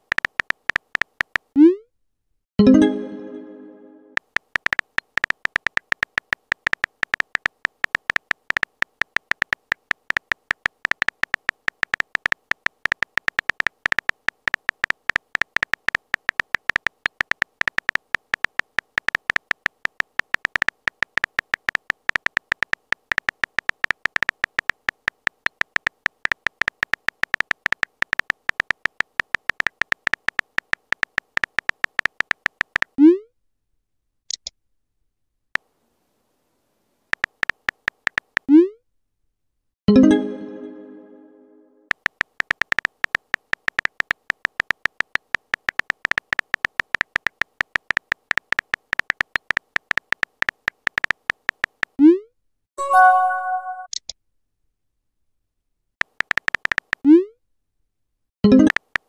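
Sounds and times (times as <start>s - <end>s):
high electronic typing blips: 2.6s - 33.0s, 52.8s - 54.0s, 58.5s - 59.0s.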